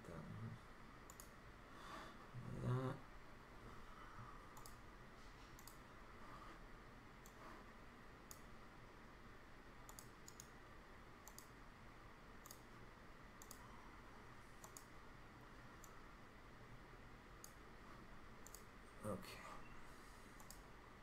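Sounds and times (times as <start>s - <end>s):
low steady hum: 0.0s - 21.0s
computer mouse clicks: 1.0s - 1.4s, 4.5s - 4.8s, 5.5s - 5.9s, 7.2s - 7.6s, 8.2s - 8.5s, 9.8s - 10.6s, 11.2s - 11.6s, 12.4s - 12.8s, 13.4s - 13.7s, 14.5s - 15.0s, 15.8s - 16.0s, 17.4s - 17.6s, 18.4s - 18.7s, 20.3s - 20.7s.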